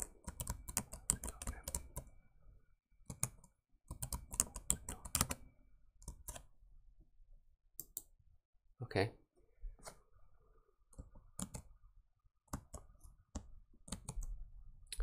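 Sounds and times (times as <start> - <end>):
keyboard typing: 0.0 - 2.1, 3.0 - 5.4, 6.0 - 6.5, 10.9 - 11.8, 12.5 - 14.3.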